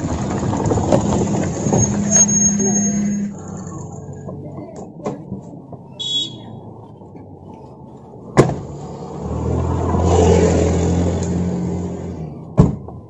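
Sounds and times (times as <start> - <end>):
car engine low hum: 0.0 - 13.0
car doors slamming: 8.4 - 8.7.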